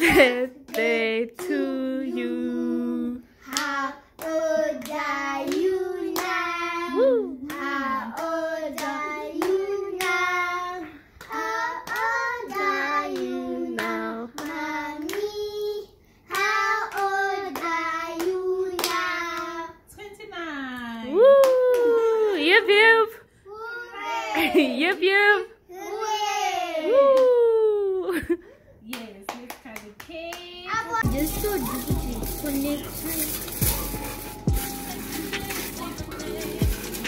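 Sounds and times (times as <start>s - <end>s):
hands clapping: 21.4s - 21.9s.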